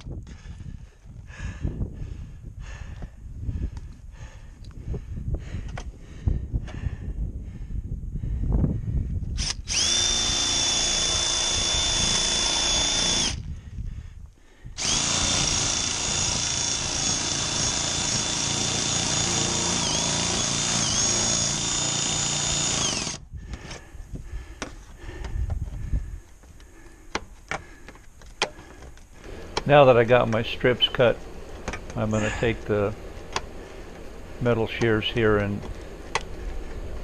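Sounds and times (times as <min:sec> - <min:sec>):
power shear cutting steel: 0:09.4 - 0:13.4, 0:14.8 - 0:23.2.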